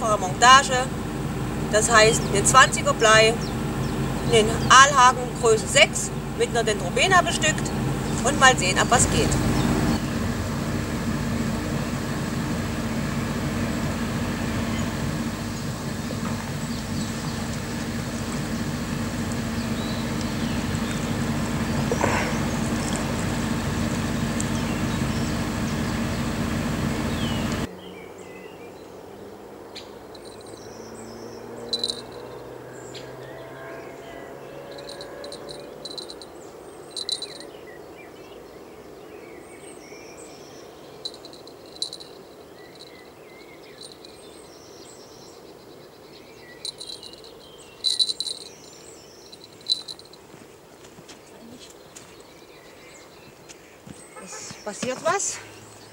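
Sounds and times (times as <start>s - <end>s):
mechanical drone: 0.0s - 27.7s, 34.0s - 36.2s, 37.0s - 37.4s, 46.6s - 48.6s
bird chirps: 16.4s - 18.7s, 19.4s - 26.4s, 27.0s - 28.9s, 29.7s - 50.2s.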